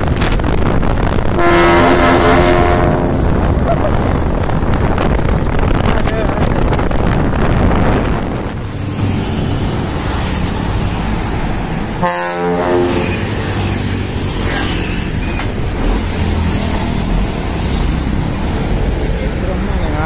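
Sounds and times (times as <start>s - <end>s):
passing traffic road noise: 0.0s - 20.0s
truck air horn blast: 1.4s - 3.3s, 12.0s - 13.4s.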